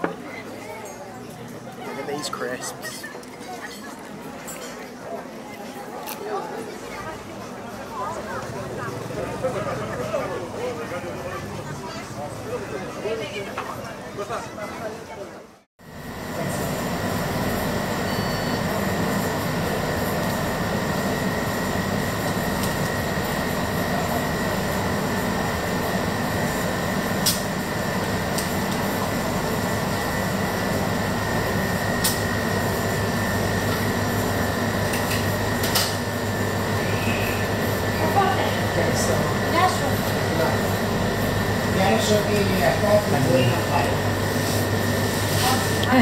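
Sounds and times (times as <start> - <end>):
refrigeration machine hum: 15.8 - 46.0.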